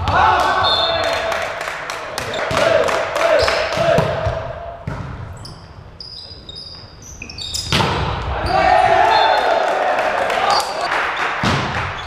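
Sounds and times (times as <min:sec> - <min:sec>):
players shouting: 0:00.0 - 0:04.5, 0:08.2 - 0:10.9
shoes squeaking on hall floor: 0:02.2 - 0:02.6, 0:05.3 - 0:09.4.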